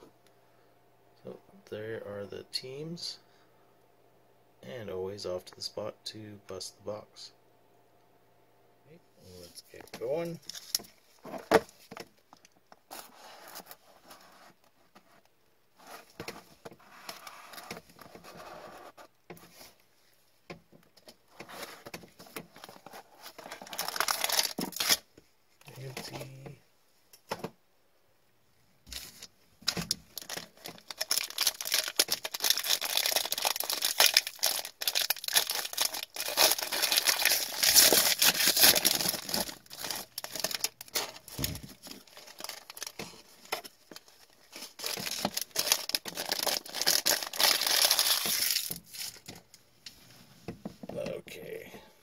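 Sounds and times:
wrapper crinkling and tearing: 22.5 - 25.1, 28.9 - 49.4.

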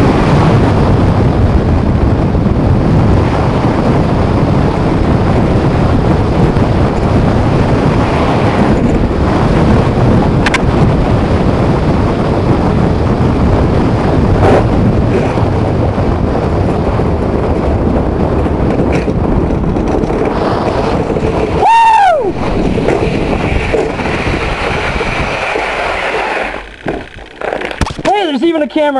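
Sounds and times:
sled runners rumbling on ice: 0.0 - 28.9
wind rushing on microphone: 0.0 - 28.9.

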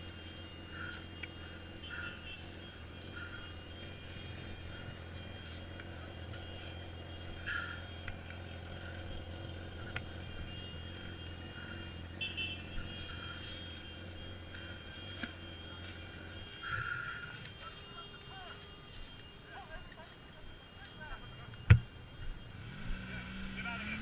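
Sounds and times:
motorcycle engine idling: 0.0 - 22.6.

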